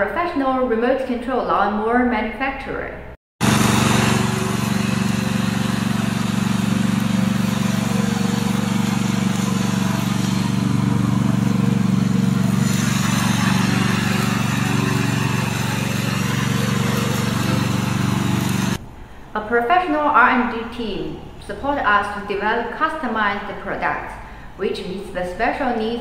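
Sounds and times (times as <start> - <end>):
mower engine running: 3.4 - 18.8.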